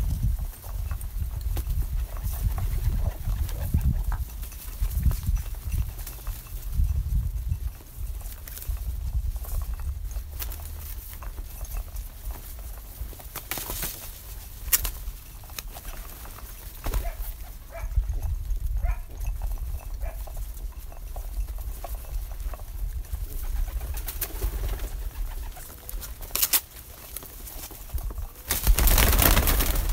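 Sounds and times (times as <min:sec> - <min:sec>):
pigeons cooing: 0:16.8 - 0:18.0.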